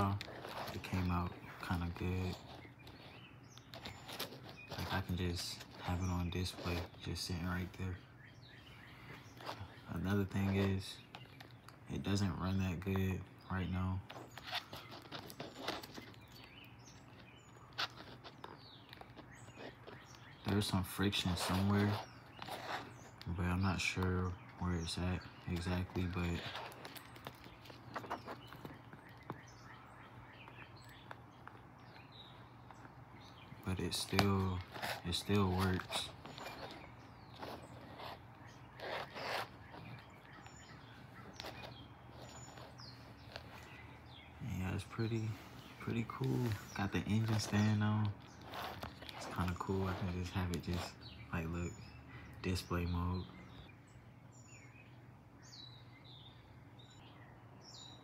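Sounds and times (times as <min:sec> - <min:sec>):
paper model scraping rustles: 0:00.0 - 0:07.8, 0:14.0 - 0:29.5, 0:33.8 - 0:44.0, 0:44.9 - 0:51.2.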